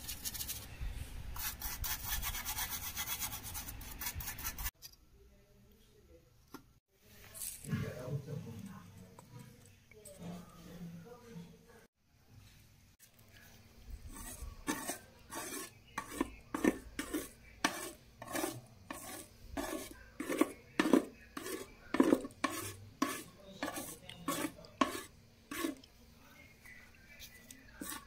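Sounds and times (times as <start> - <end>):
scraper blade scraping paint off metal: 14.1 - 25.9, 27.7 - 28.0.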